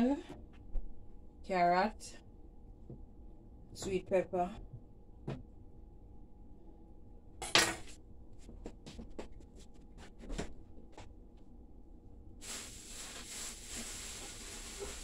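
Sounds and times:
steady hiss: 0:12.4 - 0:15.0.

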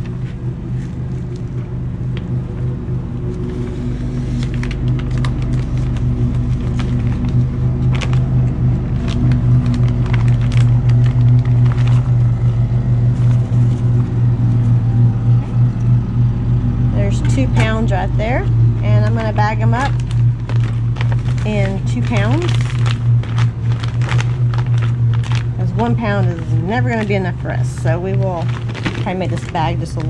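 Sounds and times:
low mechanical hum: 0:00.0 - 0:30.0
plastic bag crinkling: 0:03.4 - 0:13.9, 0:19.0 - 0:30.0.

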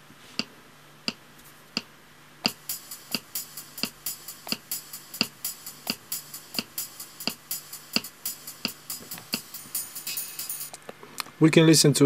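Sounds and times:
metronome clicks: 0:02.4 - 0:10.8
cymbal-like drum hits: 0:02.5 - 0:10.7.

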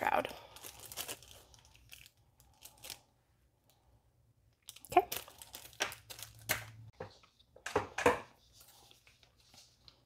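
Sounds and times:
plastic bags crinkling: 0:00.0 - 0:03.1, 0:04.6 - 0:06.7.

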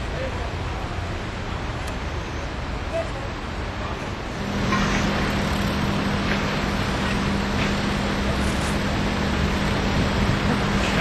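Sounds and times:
steady low hum: 0:00.0 - 0:11.0
wind on microphone: 0:04.3 - 0:11.0.

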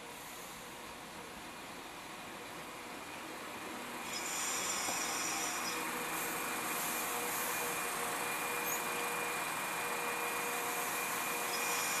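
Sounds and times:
thin high whine: 0:04.0 - 0:12.0.

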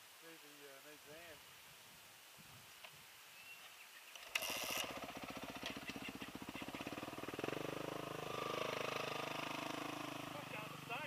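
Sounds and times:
dirt bike engine revving: 0:04.2 - 0:11.0.

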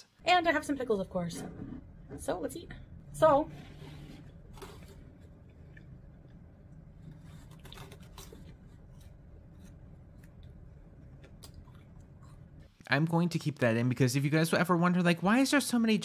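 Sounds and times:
low steady hum: 0:00.0 - 0:16.0
person chewing food: 0:04.5 - 0:12.8.

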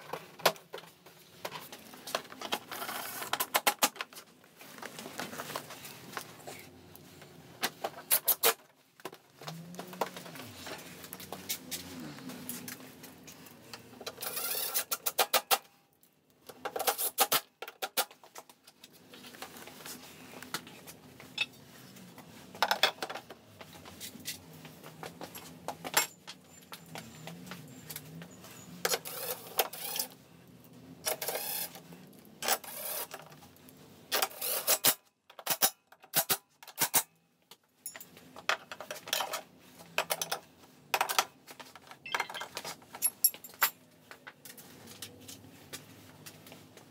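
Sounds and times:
plastic panels clicking and clattering: 0:00.0 - 0:04.2.

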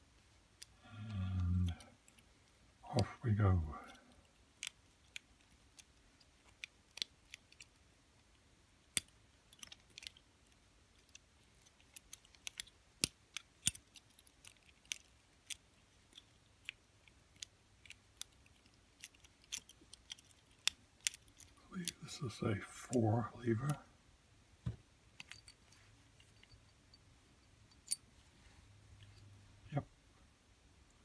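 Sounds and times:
small metal clicks of lock picking: 0:03.8 - 0:07.8, 0:08.8 - 0:22.0, 0:25.2 - 0:26.6, 0:27.7 - 0:28.0.

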